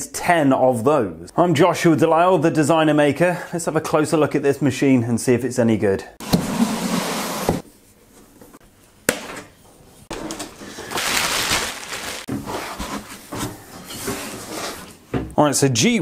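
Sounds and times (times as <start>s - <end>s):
scraping and rustling: 10.1s - 15.1s.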